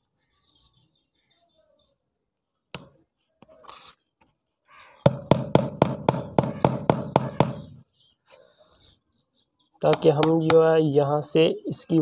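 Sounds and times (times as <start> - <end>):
hammer striking nail into plastic: 5.1 - 7.7.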